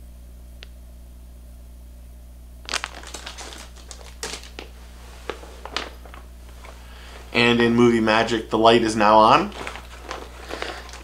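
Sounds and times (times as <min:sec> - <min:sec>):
steady low hum: 0:00.0 - 0:11.0
plastic packaging crinkling: 0:02.6 - 0:07.6, 0:08.2 - 0:11.0.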